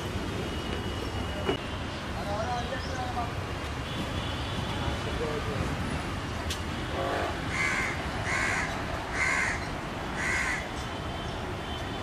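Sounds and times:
street noise: 0.0 - 12.0
crow cawing: 7.5 - 10.7.

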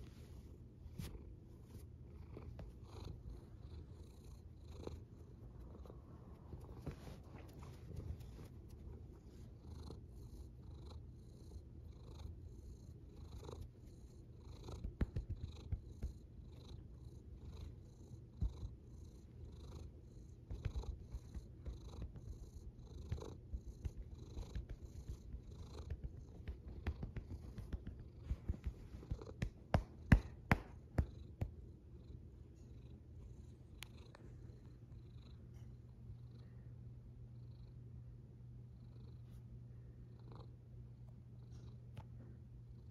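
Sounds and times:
cat purring: 0.0 - 30.3.

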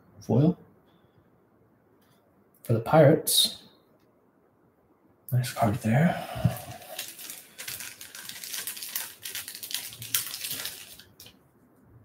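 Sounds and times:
trading cards rustling and clicking: 6.4 - 11.3.

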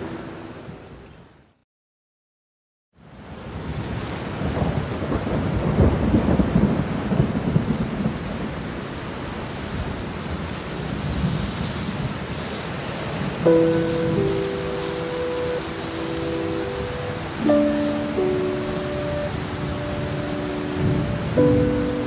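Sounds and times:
soft sustained music tones: 0.0 - 1.1, 13.4 - 22.0
rain: 0.0 - 1.6, 3.0 - 22.0
rolling thunder rumble: 4.4 - 8.7, 13.2 - 22.0.

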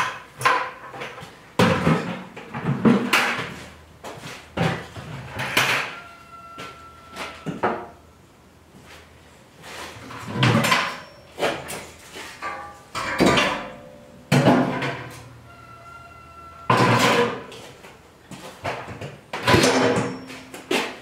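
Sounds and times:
metal pot clattering and knocking: 12.4 - 15.1.

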